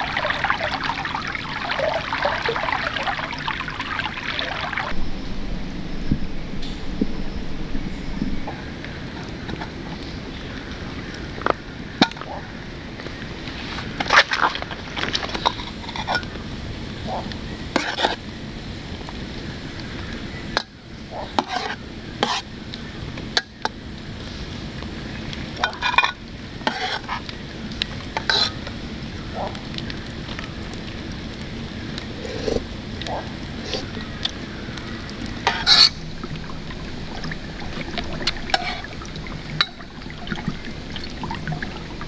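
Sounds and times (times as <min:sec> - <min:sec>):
food sizzling in a pan: 0:00.0 - 0:05.0, 0:15.3 - 0:42.0
utensil scraping and clinking on pan: 0:15.2 - 0:16.4, 0:17.8 - 0:18.2, 0:21.4 - 0:22.5, 0:25.7 - 0:27.2, 0:28.2 - 0:28.6, 0:35.4 - 0:36.0.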